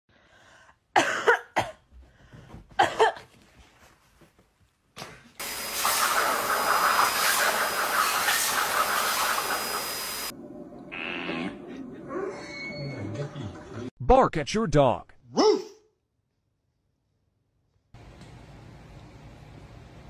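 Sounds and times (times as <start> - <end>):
cough-like sounds: 1.0 - 1.9, 2.8 - 3.3
pet grooming dryer blowing: 5.4 - 10.3.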